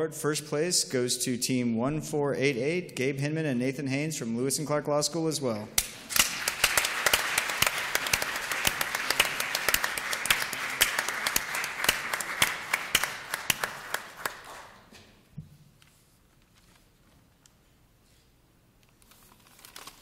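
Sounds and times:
audience applauding: 0:05.8 - 0:14.9.

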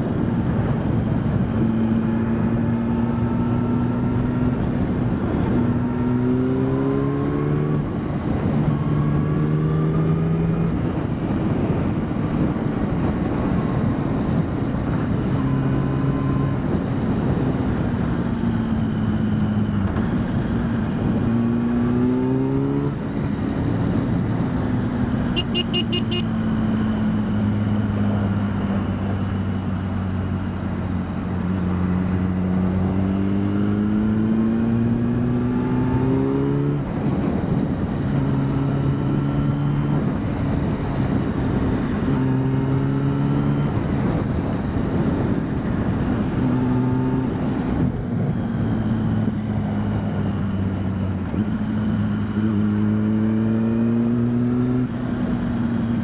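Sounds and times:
road noise: 0:00.0 - 0:56.0
wind rush: 0:00.0 - 0:56.0
motorcycle engine running: 0:23.0 - 0:32.8.

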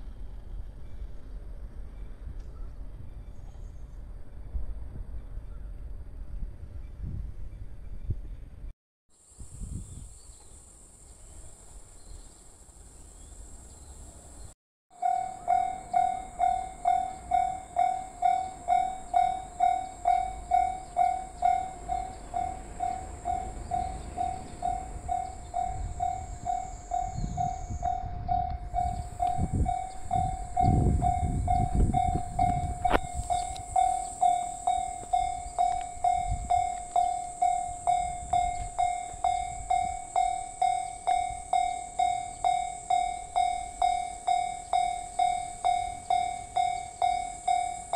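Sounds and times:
passing train rumble: 0:00.0 - 0:08.7, 0:10.7 - 0:47.9
level crossing bell clanging: 0:15.0 - 0:47.9.

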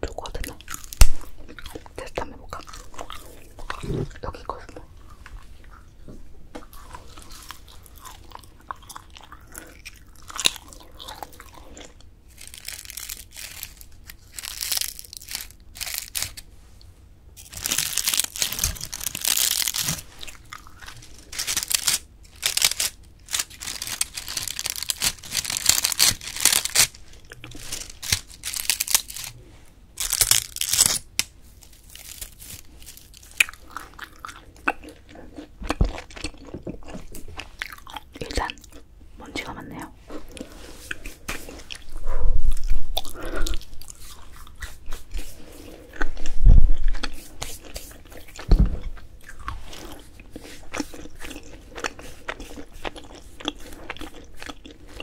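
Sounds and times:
dried flowers crackling: 0:10.3 - 0:16.5, 0:17.4 - 0:34.0.

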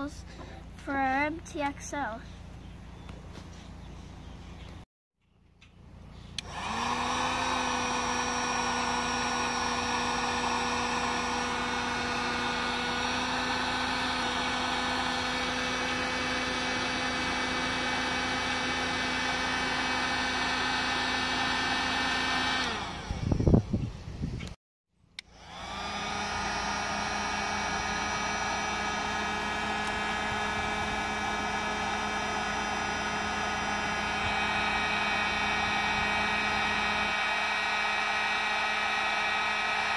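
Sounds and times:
heat gun blowing air: 0:06.4 - 0:23.6, 0:25.2 - 0:39.9.

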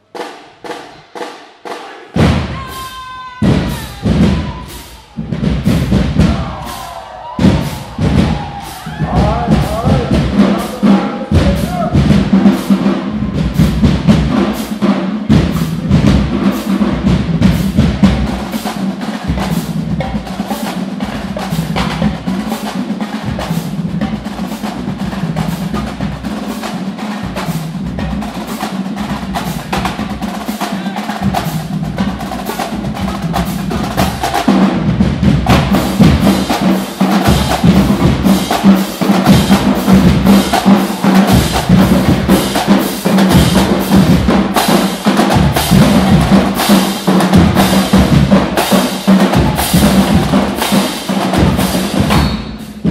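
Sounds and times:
drumline playing fast cadence: 0:00.0 - 0:52.9.

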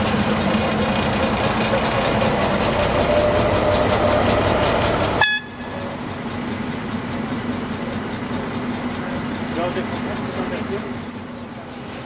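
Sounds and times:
diesel locomotive engine drone: 0:00.0 - 0:12.0
locomotive horn toot: 0:05.2 - 0:05.8.

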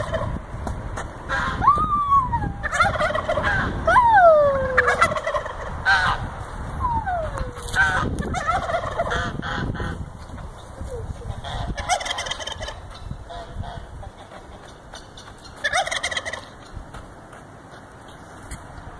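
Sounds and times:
turkeys gobbling: 0:00.0 - 0:00.3, 0:01.3 - 0:06.2, 0:06.8 - 0:16.8.

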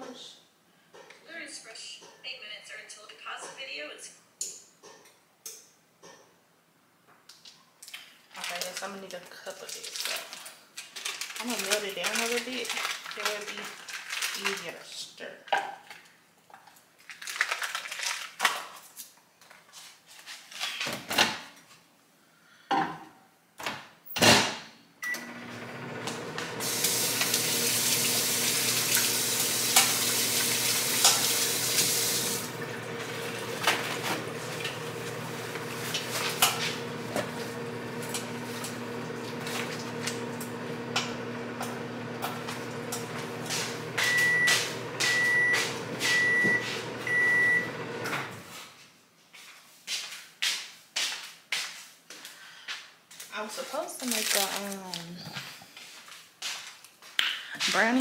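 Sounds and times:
microwave oven humming: 0:25.0 - 0:48.4
tap running: 0:25.2 - 0:48.3.

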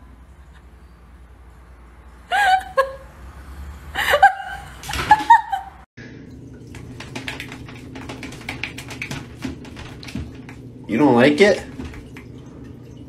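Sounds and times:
person laughing: 0:02.3 - 0:03.1, 0:04.0 - 0:05.8
quick irregular ticks: 0:06.9 - 0:10.6.

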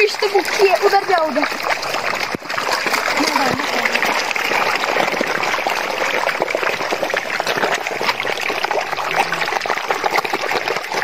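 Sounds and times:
fish splashing at water surface: 0:00.0 - 0:11.0.

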